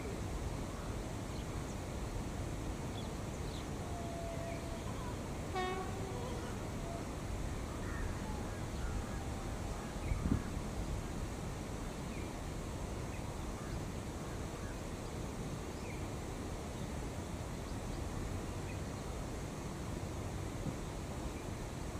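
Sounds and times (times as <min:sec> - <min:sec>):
faint bird chirps: 0:02.9 - 0:10.6.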